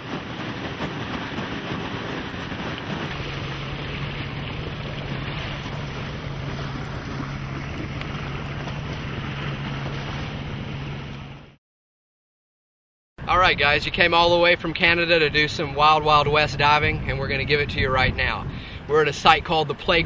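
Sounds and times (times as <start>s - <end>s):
boat engine humming: 0.0s - 11.6s, 13.2s - 20.0s
rushing water: 0.0s - 11.6s
wind on microphone: 13.2s - 20.0s.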